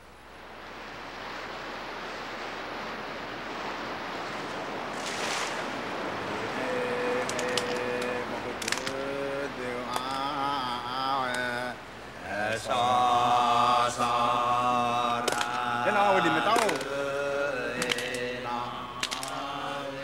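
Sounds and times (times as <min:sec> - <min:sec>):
ocean waves: 0:00.0 - 0:20.0
wind: 0:00.0 - 0:20.0
chant in long held notes: 0:06.2 - 0:20.0
sharp clicks: 0:07.2 - 0:09.0.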